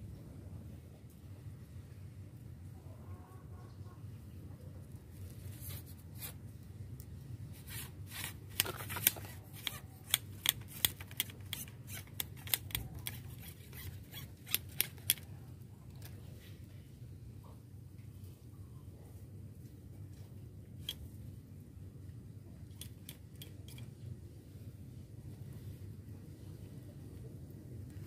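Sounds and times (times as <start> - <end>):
fishing reel clicking: 7.7 - 15.2.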